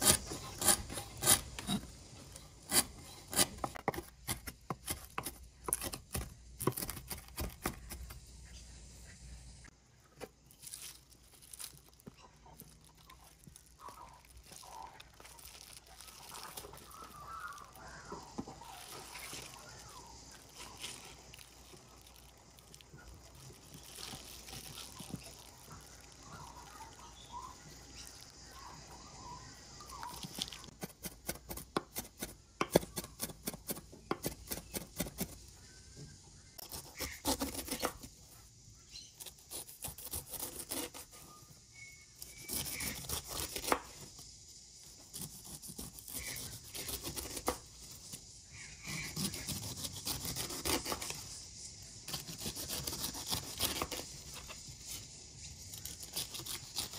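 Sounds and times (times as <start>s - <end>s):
knife cutting pineapple skin: 0.0s - 8.2s, 36.6s - 38.2s, 39.0s - 44.2s, 44.8s - 48.2s, 48.8s - 51.4s, 52.1s - 55.0s, 55.6s - 56.9s.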